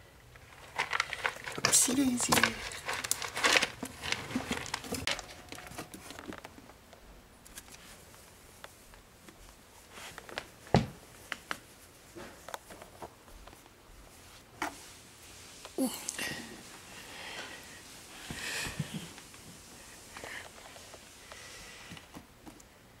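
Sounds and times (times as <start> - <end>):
ferrets rustling and scratching: 0.4 - 6.7, 7.4 - 15.8.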